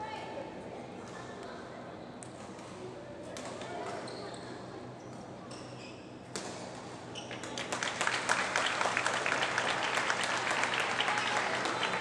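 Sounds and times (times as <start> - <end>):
spectators clapping: 7.4 - 12.0.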